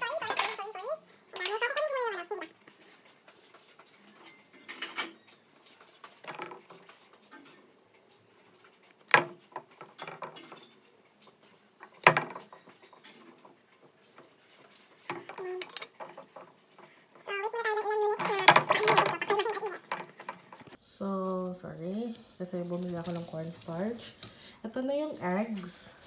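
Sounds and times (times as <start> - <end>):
utensils and dishes clinking: 0.0 - 20.8.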